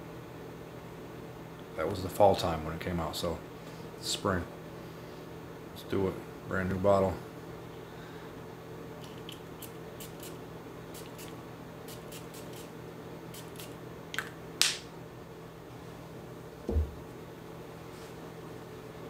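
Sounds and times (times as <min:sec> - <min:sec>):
steady room hum: 0:00.0 - 0:19.0
spray bottle spritzing: 0:09.0 - 0:10.4, 0:11.0 - 0:12.7, 0:13.3 - 0:13.8
low thump: 0:16.7 - 0:17.0.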